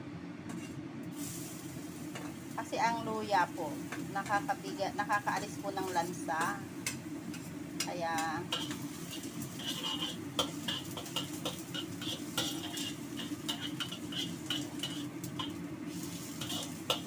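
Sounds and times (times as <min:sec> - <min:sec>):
faint sizzle: 0:00.0 - 0:17.0
metal spatula scraping wok: 0:00.5 - 0:02.4, 0:05.8 - 0:17.0.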